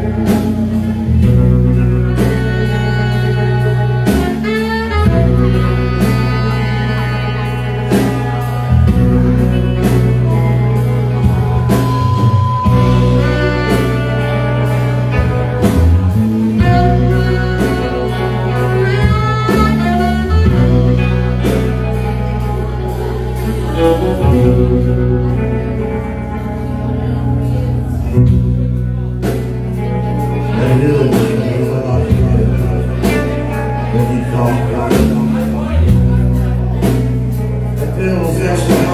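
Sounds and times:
live rock band playing: 0:00.0 - 0:38.9
person singing lead: 0:30.2 - 0:35.8.

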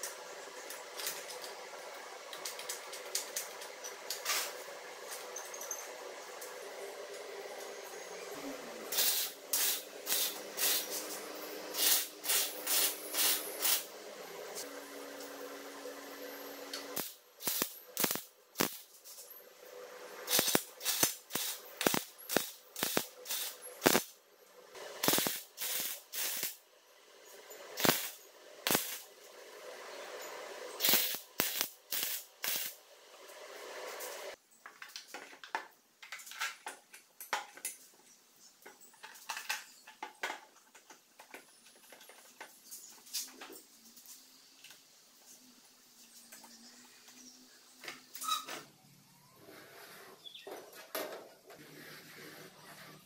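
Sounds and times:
welder hiss: 0:08.6 - 0:18.9, 0:20.2 - 0:24.1, 0:24.8 - 0:26.6, 0:27.7 - 0:29.1, 0:30.2 - 0:34.4
welding crackling bursts: 0:08.9 - 0:13.9, 0:16.7 - 0:19.2, 0:20.2 - 0:24.2, 0:24.8 - 0:26.6, 0:27.7 - 0:29.1, 0:30.7 - 0:34.4.

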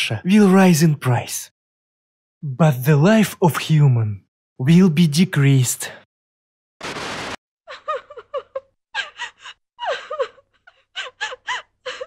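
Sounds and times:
woman sobbing: 0:07.7 - 0:12.0.

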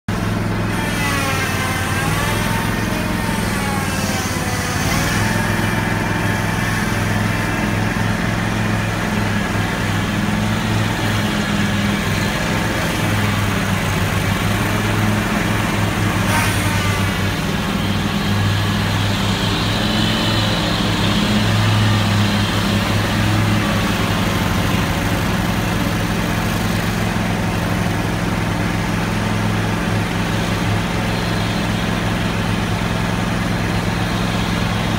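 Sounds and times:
lawn mower engine running: 0:00.1 - 0:34.9.

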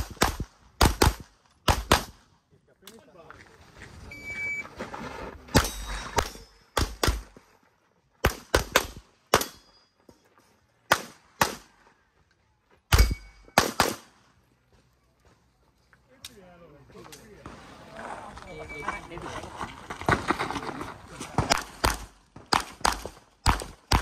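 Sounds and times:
pistol shots: 0:00.0 - 0:02.2, 0:05.6 - 0:07.3, 0:08.2 - 0:09.7, 0:10.9 - 0:11.7, 0:12.9 - 0:14.2, 0:21.5 - 0:24.0.

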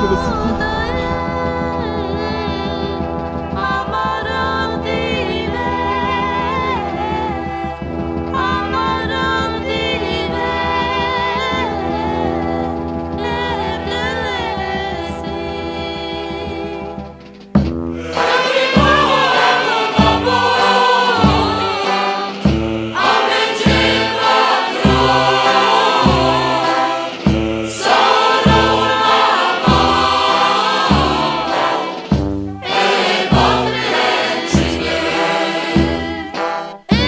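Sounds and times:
group of voices singing: 0:00.0 - 0:17.1, 0:18.0 - 0:37.0
steady music beat: 0:17.0 - 0:37.0.

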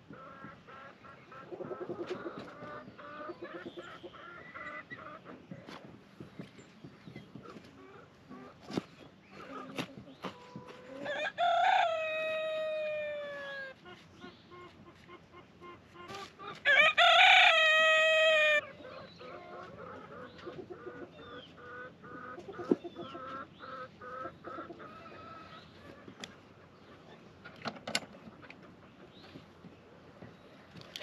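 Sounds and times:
chickens clucking: 0:00.0 - 0:31.0
rooster crowing: 0:16.7 - 0:18.6.

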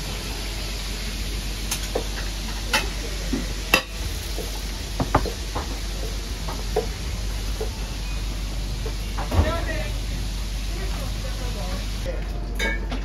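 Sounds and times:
frying hiss: 0:00.0 - 0:12.1
frying pan and utensils clinking: 0:03.7 - 0:05.4, 0:12.6 - 0:13.0.

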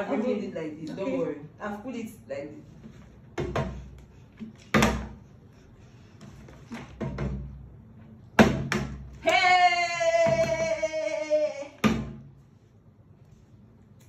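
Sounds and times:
girl crying out: 0:09.2 - 0:11.8.

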